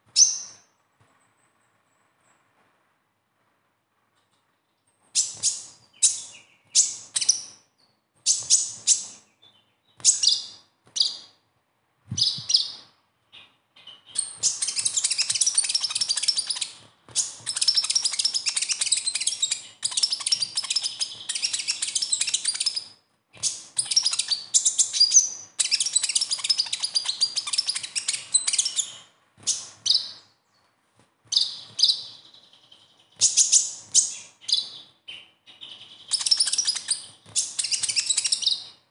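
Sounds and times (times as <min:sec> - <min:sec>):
sunbird high-pitched twittering: 0:00.1 - 0:00.7, 0:05.2 - 0:11.3, 0:12.2 - 0:30.6, 0:31.3 - 0:38.8.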